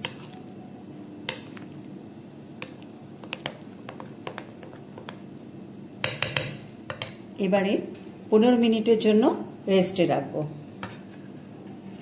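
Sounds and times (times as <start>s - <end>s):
spoon stirring thick batter: 0.0s - 0.5s, 1.2s - 1.9s, 2.6s - 5.4s.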